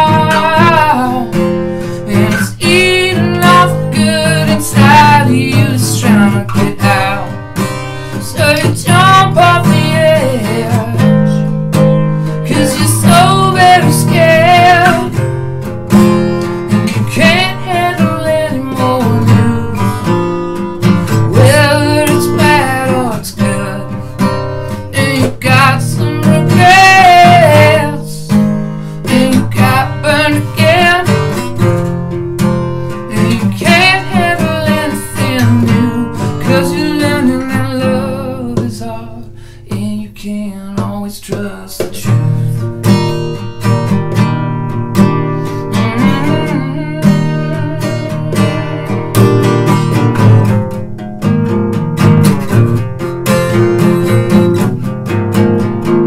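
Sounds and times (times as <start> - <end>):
man singing: 0.0 - 11.6, 12.2 - 15.4, 16.7 - 20.2, 20.8 - 31.8, 33.0 - 43.1, 45.5 - 49.2, 53.5 - 54.9
acoustic guitar strumming: 0.0 - 56.0.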